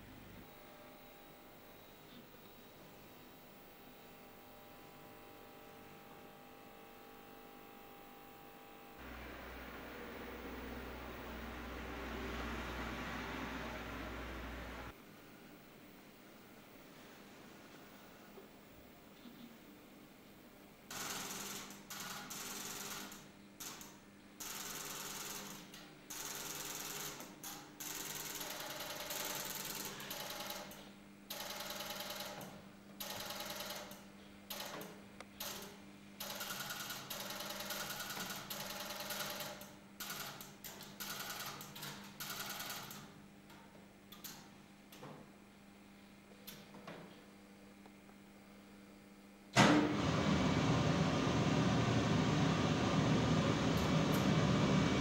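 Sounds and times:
low hum: 0:09.0 - 0:15.4
telephone exchange relays clicking: 0:20.9 - 0:34.8, 0:35.4 - 0:43.1.

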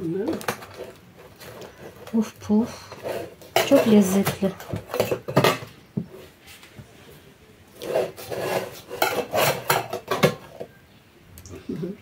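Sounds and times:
cakes scraping against each other: 0:00.6 - 0:05.3, 0:07.7 - 0:10.5.

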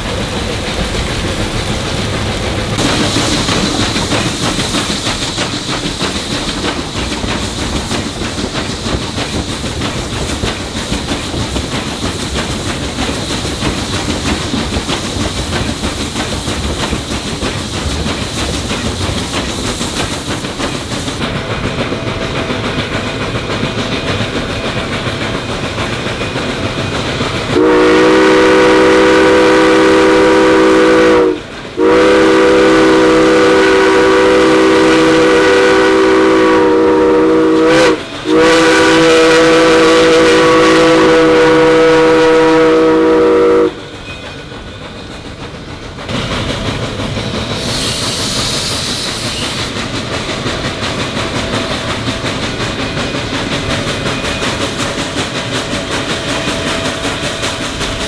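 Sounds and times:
steam locomotive running on rails: 0:00.0 - 0:58.0
steam whistle blasts: 0:27.6 - 0:43.8.

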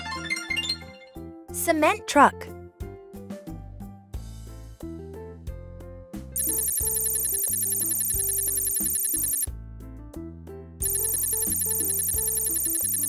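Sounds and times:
cheerful children's music: 0:00.0 - 0:02.6, 0:10.8 - 0:13.0
high-pitched ringing sound effect: 0:06.4 - 0:09.5.

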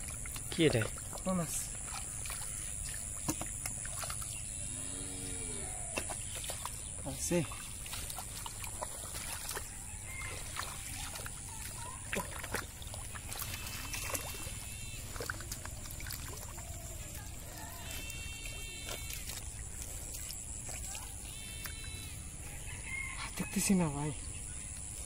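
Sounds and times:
hands sloshing through muddy water: 0:00.0 - 0:04.7, 0:05.5 - 0:23.6
small splashes: 0:00.0 - 0:04.7, 0:05.6 - 0:22.8.

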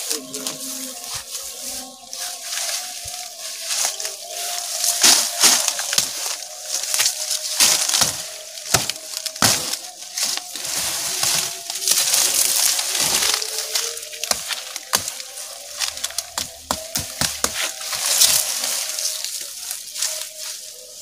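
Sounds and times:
foliage rustling: 0:00.0 - 0:21.0
branches snapping: 0:00.2 - 0:21.0.

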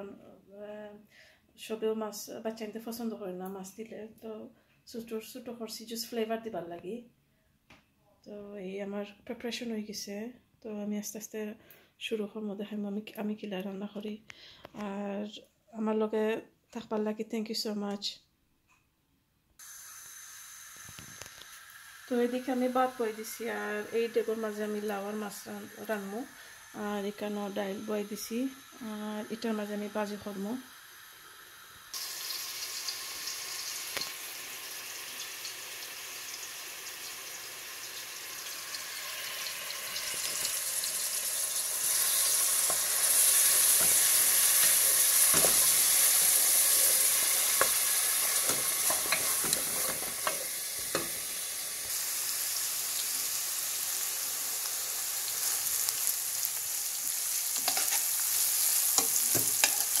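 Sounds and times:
food sizzling in hot oil: 0:19.6 - 1:00.0
utensil clicking against pan: 0:48.4 - 0:51.2, 0:57.6 - 0:58.0, 0:59.0 - 1:00.0.

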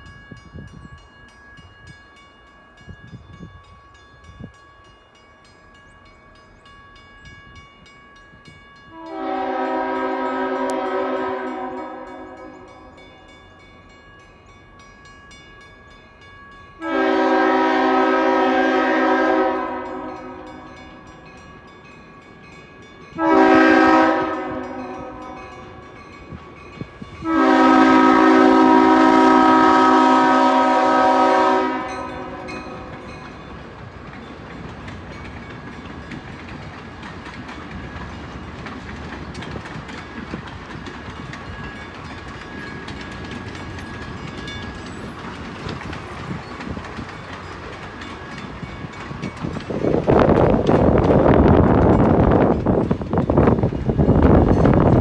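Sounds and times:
train wheels rumbling on rail: 0:00.0 - 0:55.0
locomotive air horn blasts: 0:08.9 - 0:12.9, 0:16.8 - 0:20.9, 0:23.2 - 0:25.8, 0:27.2 - 0:32.9.

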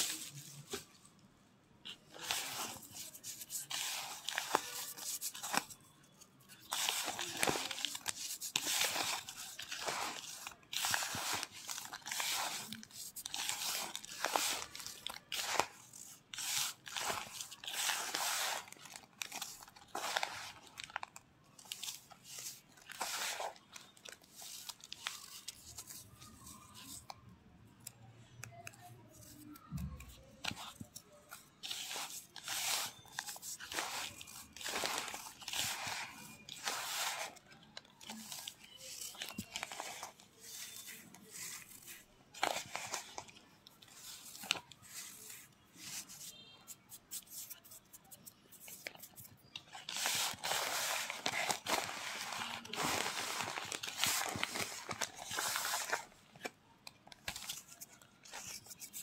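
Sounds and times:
gritty crunching of powder: 0:06.7 - 0:18.9.

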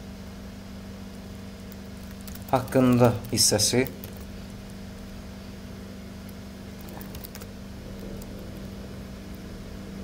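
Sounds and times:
low background hum: 0:00.0 - 0:10.0
computer mouse clicks: 0:01.7 - 0:04.3, 0:06.2 - 0:08.7.

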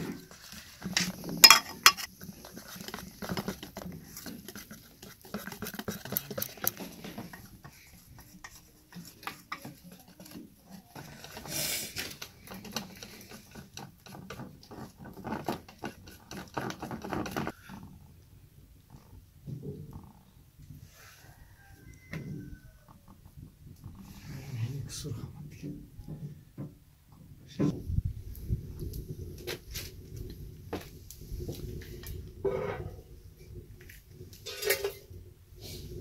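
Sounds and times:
whisk rattling in metal bowl: 0:00.5 - 0:11.5.

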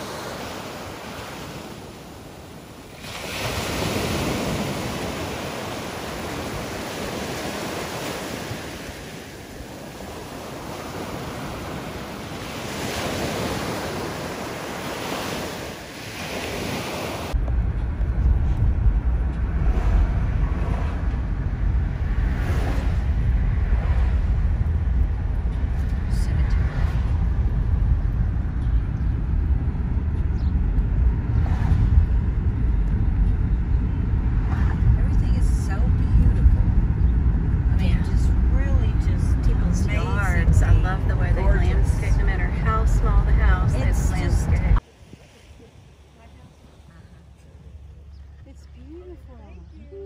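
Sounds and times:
ocean waves breaking on shore: 0:00.0 - 0:17.4, 0:21.9 - 0:25.1, 0:37.7 - 0:47.9
wind on microphone: 0:00.0 - 0:48.2
road rumble inside car: 0:17.3 - 0:44.8.

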